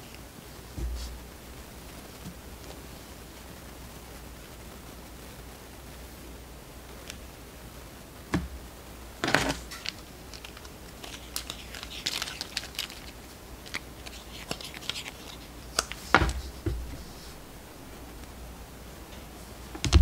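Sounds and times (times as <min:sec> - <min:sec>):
cloth and thread rustling: 0:00.0 - 0:03.4, 0:09.2 - 0:20.0.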